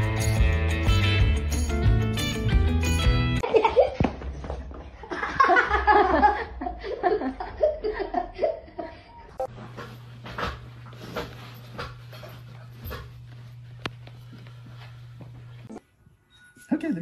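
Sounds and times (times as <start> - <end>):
human laughter: 5.0 - 9.3.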